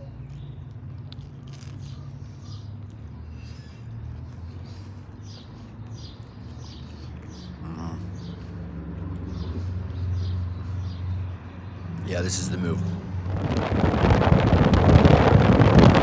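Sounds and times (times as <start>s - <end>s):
street traffic rumble: 0.0s - 16.0s.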